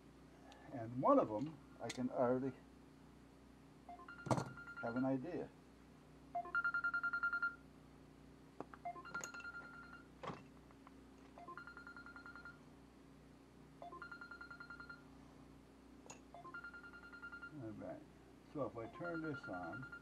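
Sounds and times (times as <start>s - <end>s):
electronic beeper pattern: 18.8s - 20.0s.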